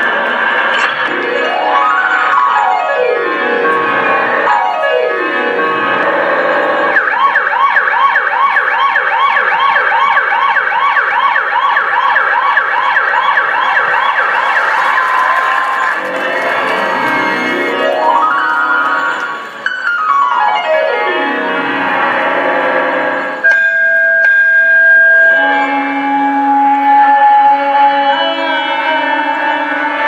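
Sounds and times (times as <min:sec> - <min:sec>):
electronic siren sound effect: 0:00.2 - 0:23.4.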